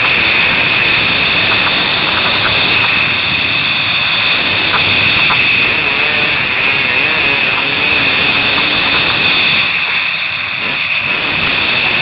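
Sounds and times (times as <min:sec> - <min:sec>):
wind rush: 0:00.0 - 0:12.0
dirt bike engine revving: 0:04.2 - 0:12.0.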